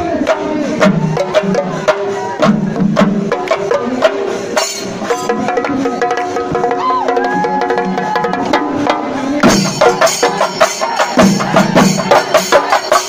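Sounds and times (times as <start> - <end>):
drums beaten with sticks: 0.0 - 13.0
hand cymbals clashing: 4.1 - 6.4, 9.4 - 13.0.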